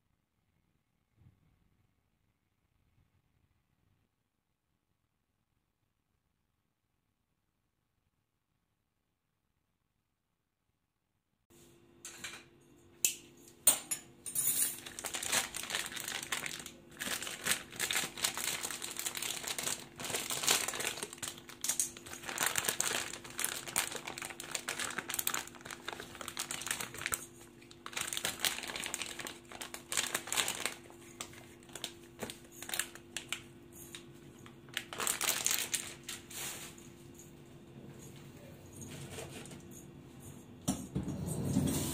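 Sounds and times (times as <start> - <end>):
plastic bag crinkling: 14.6 - 36.8.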